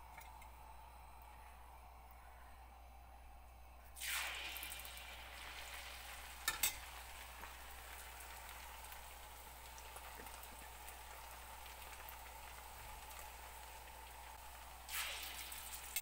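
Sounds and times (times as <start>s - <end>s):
oil sizzling and bubbling: 3.9s - 16.0s.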